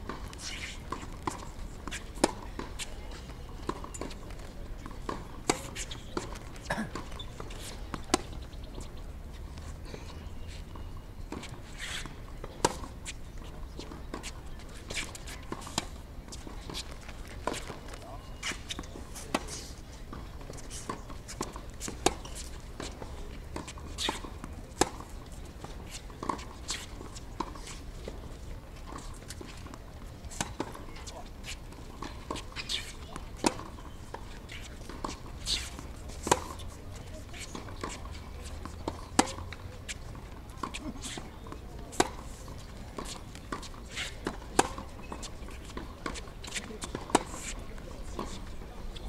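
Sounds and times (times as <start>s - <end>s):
tennis balls bouncing on court: 0.0s - 49.0s
tennis balls struck by rackets: 11.3s - 48.9s.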